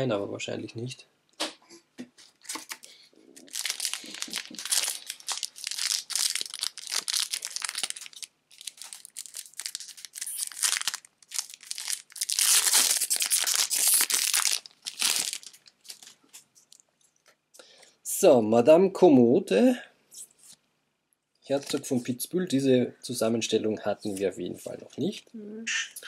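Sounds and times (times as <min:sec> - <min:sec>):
foil wrapper crinkling and tearing: 0:03.4 - 0:16.8.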